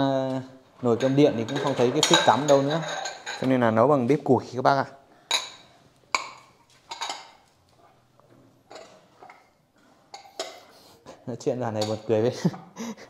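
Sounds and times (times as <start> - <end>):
dishes clinking and knocking: 0.0 - 4.0, 5.3 - 7.6, 8.2 - 10.8, 11.5 - 12.8.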